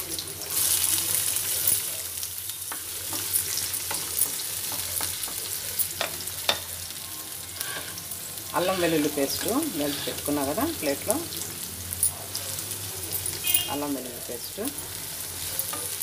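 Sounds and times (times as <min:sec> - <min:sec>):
onions sizzling in hot oil: 0:00.0 - 0:16.0
spatula knocking and scraping pan: 0:02.7 - 0:06.7, 0:07.6 - 0:08.0, 0:08.6 - 0:10.8.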